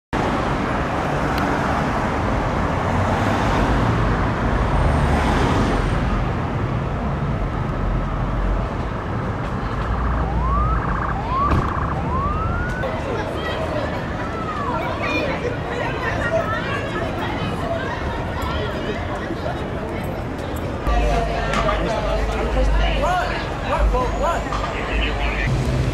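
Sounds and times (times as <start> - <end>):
city traffic noise: 0.2 - 25.9
police siren whoops: 9.8 - 13.0.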